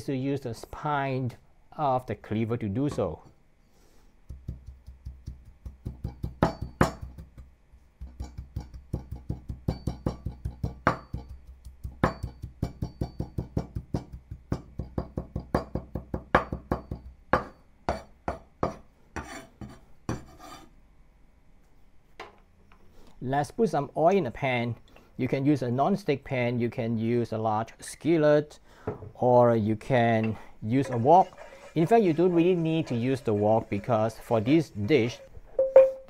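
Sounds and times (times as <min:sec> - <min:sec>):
blade scraping board: 0:19.2 - 0:20.7, 0:30.8 - 0:35.2.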